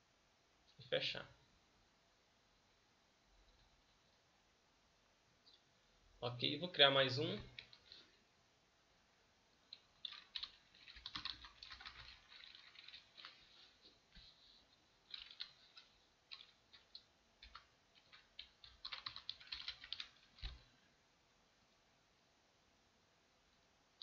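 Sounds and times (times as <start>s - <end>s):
typing on a keyboard: 7.4s - 7.9s, 9.7s - 14.3s, 15.0s - 20.7s.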